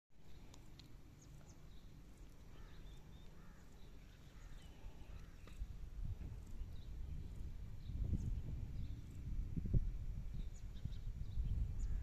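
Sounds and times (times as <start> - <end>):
faint bird chirps: 0.2 - 5.7, 10.3 - 12.0
low steady rumble: 0.2 - 12.0.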